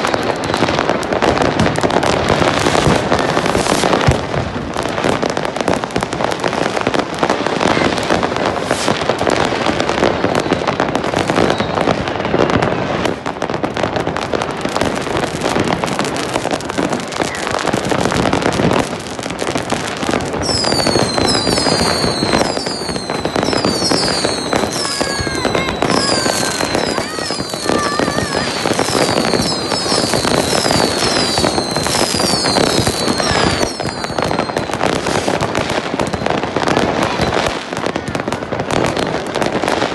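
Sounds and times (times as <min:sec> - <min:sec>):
fireworks crackling and popping: 0:00.0 - 0:39.9
falling firework whistles: 0:10.0 - 0:12.6, 0:20.3 - 0:37.6.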